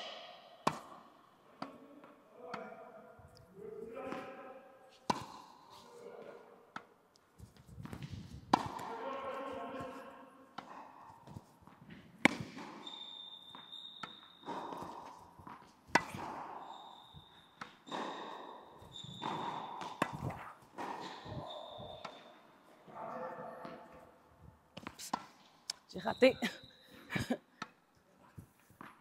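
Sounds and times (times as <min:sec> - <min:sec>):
racket hitting tennis ball: 0:00.0 - 0:01.8, 0:05.0 - 0:05.9, 0:06.7 - 0:22.4, 0:24.8 - 0:25.5
ball bouncing on hard court: 0:00.6 - 0:01.0, 0:06.8 - 0:10.0, 0:10.6 - 0:22.3
short high squeaks: 0:12.8 - 0:15.0, 0:16.0 - 0:22.3.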